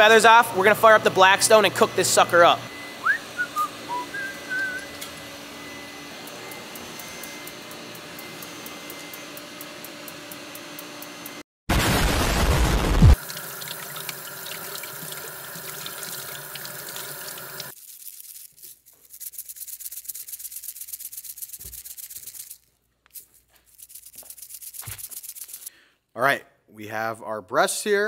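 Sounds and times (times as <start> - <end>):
explosion sound effect: 11.7 - 13.2
spice shaker rattling: 17.7 - 25.7.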